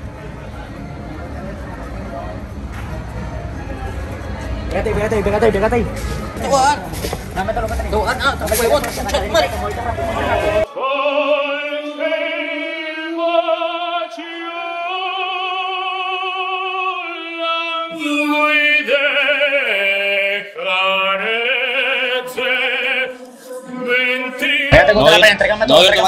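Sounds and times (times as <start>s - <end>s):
man singing with vibrato: 10.3s - 26.0s.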